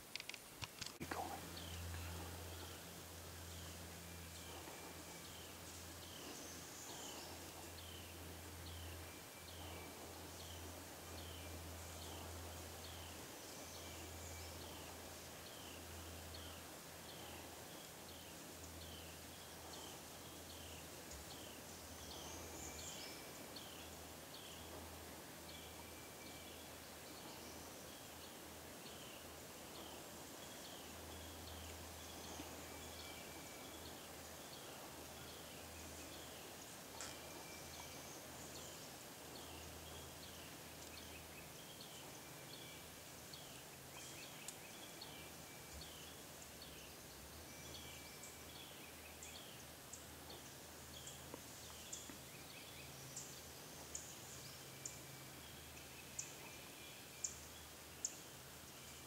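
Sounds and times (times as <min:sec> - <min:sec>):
low hum: 0:00.8 - 0:46.6
songbird high chirps: 0:01.0 - 0:59.0.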